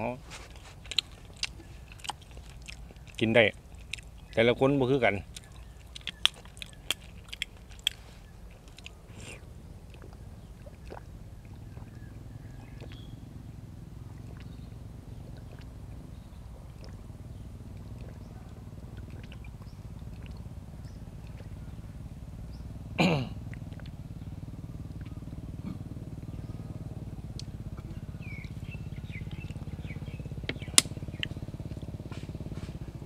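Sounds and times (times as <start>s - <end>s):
low hum: 0.0s - 33.0s
eating clicks: 0.5s - 13.1s, 14.1s - 21.6s, 23.4s - 24.0s, 27.3s - 32.4s.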